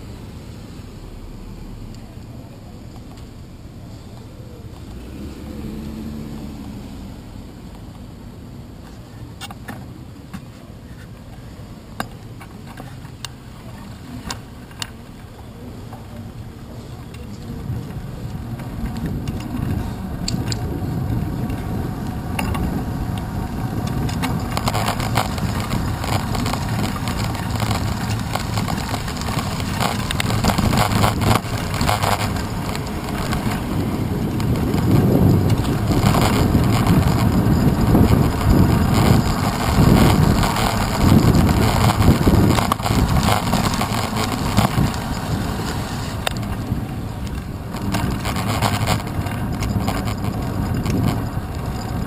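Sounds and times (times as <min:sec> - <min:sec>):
road rumble: 0:00.0 - 0:52.0
wind: 0:00.0 - 0:52.0
bicycle rattling over bumps: 0:09.5 - 0:52.0.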